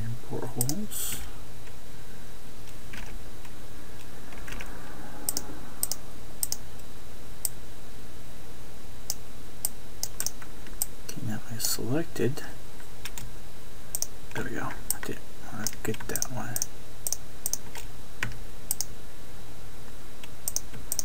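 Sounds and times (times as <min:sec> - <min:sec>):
low hum: 0:00.0 - 0:21.0
mouse and keyboard clicks: 0:10.0 - 0:10.9, 0:15.6 - 0:18.9, 0:20.5 - 0:21.0.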